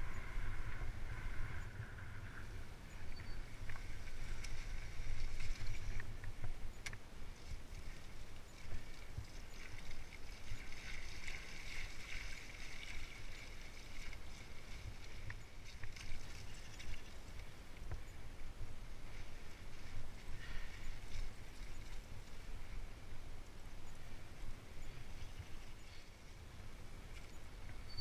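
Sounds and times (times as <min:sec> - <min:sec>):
wind rumbling on microphone: 0:00.0 - 0:28.0
bike tyres swishing over wet grass: 0:03.8 - 0:06.6, 0:07.2 - 0:17.8.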